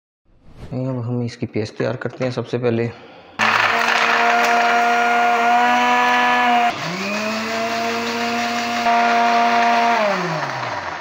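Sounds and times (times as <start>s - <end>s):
blender motor grinding: 3.4s - 11.0s.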